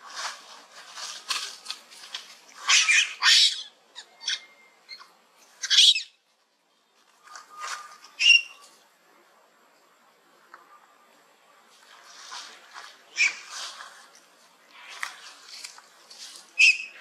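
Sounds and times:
young macaques squealing: 0:02.6 - 0:06.2, 0:16.6 - 0:17.0.

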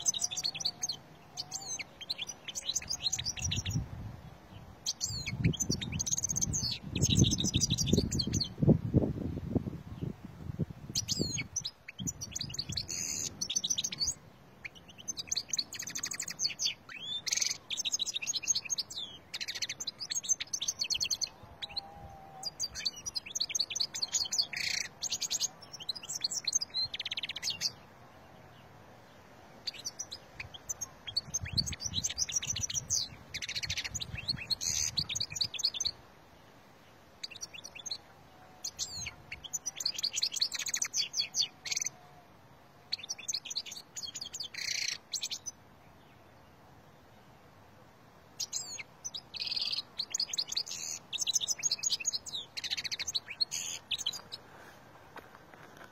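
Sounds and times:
goldfinch singing: 0:00.0 - 0:03.8, 0:04.8 - 0:08.6, 0:10.9 - 0:27.8, 0:29.6 - 0:36.0, 0:37.2 - 0:42.0, 0:42.9 - 0:45.6, 0:48.4 - 0:54.5.

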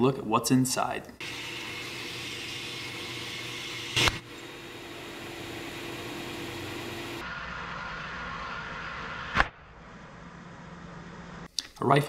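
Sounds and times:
belt sander running: 0:01.2 - 0:07.2
sharp crack: 0:07.8 - 0:09.8.

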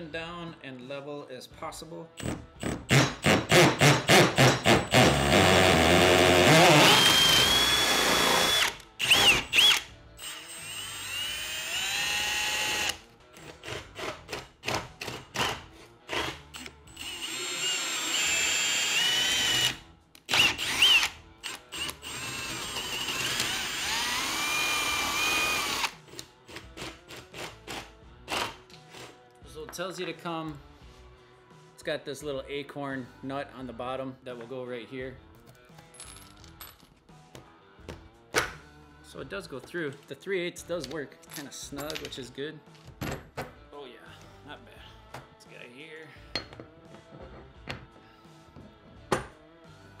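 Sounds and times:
cordless drill boring wood: 0:02.2 - 0:13.0, 0:16.1 - 0:26.0.

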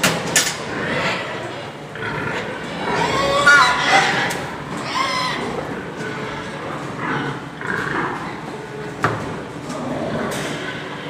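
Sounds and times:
barn background noise: 0:00.0 - 0:11.0
pigs squealing: 0:00.7 - 0:08.0
pig cry: 0:00.7 - 0:08.2.

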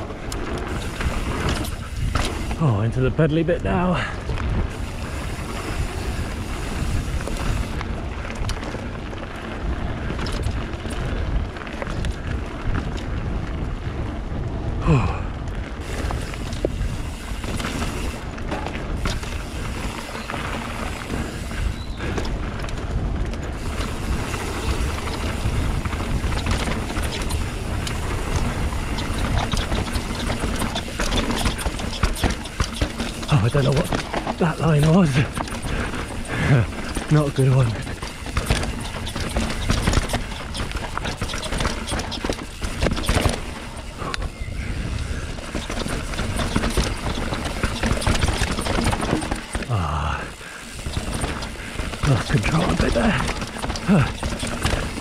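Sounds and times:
bike rattling: 0:00.0 - 0:55.0
bike tyres rolling over dirt: 0:00.0 - 0:55.0
wind on microphone: 0:04.0 - 0:33.9, 0:37.6 - 0:49.3.

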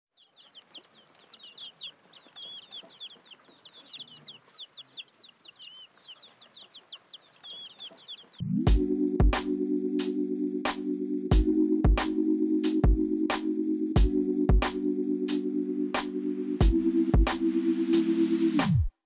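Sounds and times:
small birds chirping: 0:00.1 - 0:08.4.

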